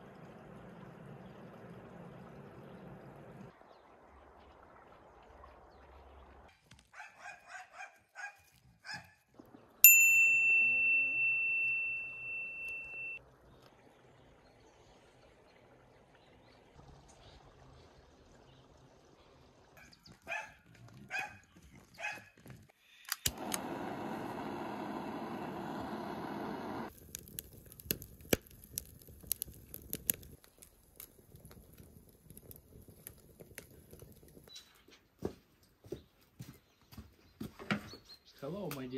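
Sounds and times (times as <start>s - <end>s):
dog barking: 6.9s - 9.2s, 19.8s - 22.3s
kindling crackling and snapping: 22.0s - 34.9s
gas torch clicking alight: 23.0s - 31.2s
gas torch hissing: 23.2s - 26.9s.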